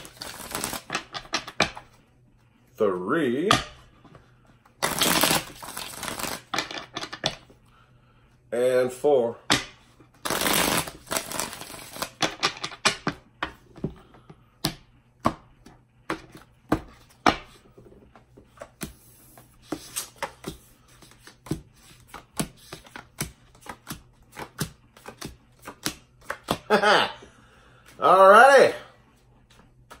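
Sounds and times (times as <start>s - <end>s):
card shuffling rustle: 0.0s - 1.1s, 4.8s - 6.8s
cards tapping and clicking: 0.1s - 1.8s, 19.7s - 26.7s.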